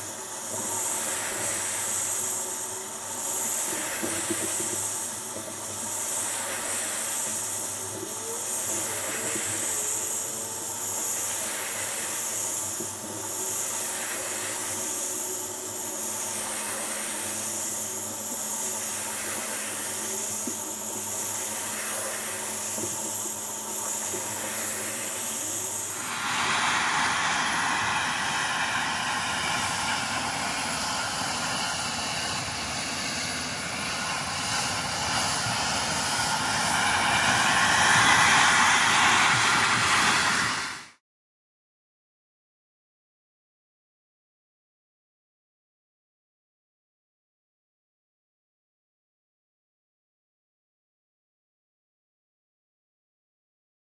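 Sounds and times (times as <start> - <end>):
pressure washer hissing: 0.0 - 41.0.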